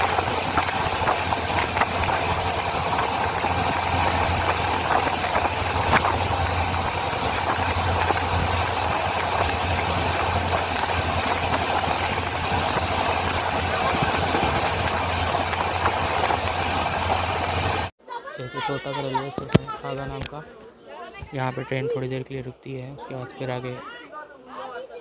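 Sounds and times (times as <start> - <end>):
train wheels rumbling on rails: 0.0 - 17.9.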